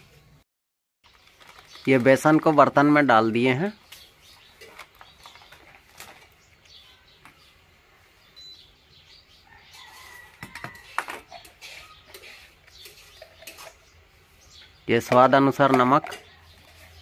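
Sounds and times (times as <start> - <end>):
birds chirping faintly: 1.0 - 17.0
steel utensils clinking: 10.6 - 13.9.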